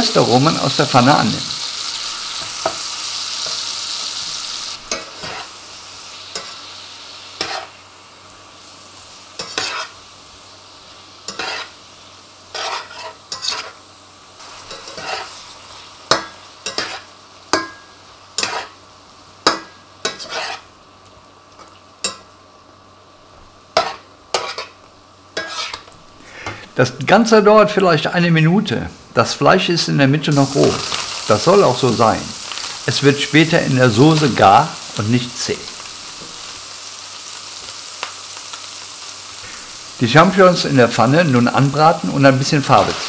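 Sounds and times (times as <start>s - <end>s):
meat sizzling in a pan: 0.0s - 27.0s, 30.3s - 43.0s
metal spatula scraping a pan: 4.9s - 5.6s, 7.4s - 7.8s, 9.4s - 10.0s, 11.3s - 11.8s, 12.5s - 13.8s, 14.4s - 15.5s, 16.1s - 17.8s, 18.4s - 18.8s, 20.1s - 20.7s, 23.8s - 24.8s, 25.4s - 26.6s.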